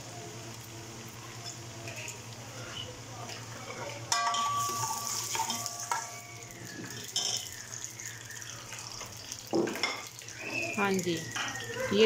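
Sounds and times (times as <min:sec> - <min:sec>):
onions sizzling in oil: 0:00.0 - 0:12.0
metal ladle clinking on pot: 0:04.1 - 0:06.1.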